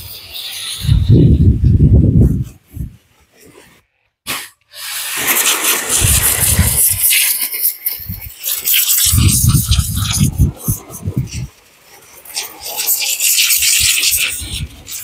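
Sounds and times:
pressure washer jet hissing: 4.3s - 11.5s, 12.2s - 15.0s.

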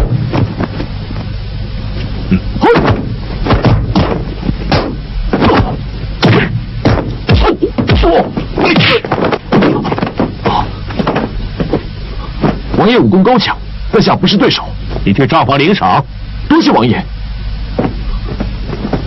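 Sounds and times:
whooshing strikes and thuds: 0.0s - 0.9s, 2.7s - 11.8s
fighters shouting and grunting: 5.4s - 10.8s.

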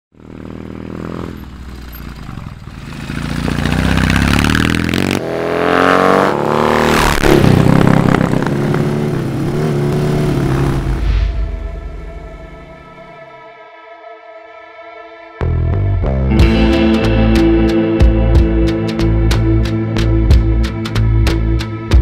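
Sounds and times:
motorcycle engine revving: 0.2s - 12.6s.

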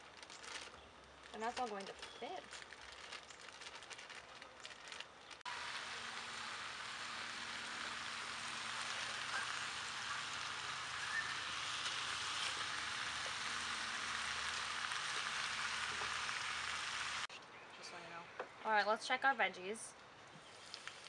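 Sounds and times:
vegetables sizzling in oil: 5.5s - 17.3s.

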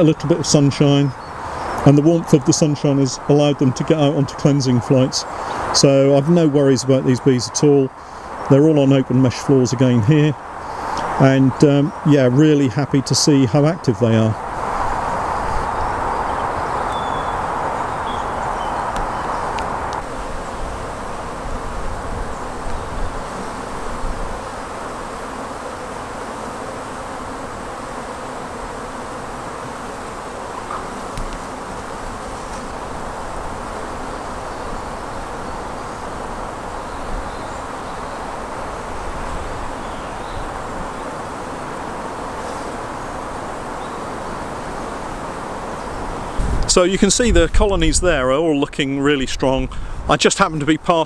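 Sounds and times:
honeybees buzzing: 0.0s - 51.0s.

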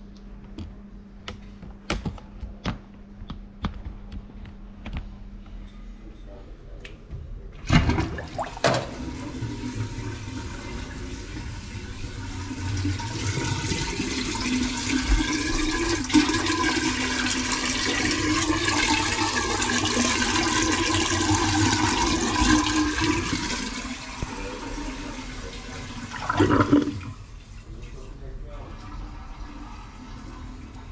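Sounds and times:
water draining from sink: 7.6s - 27.5s.

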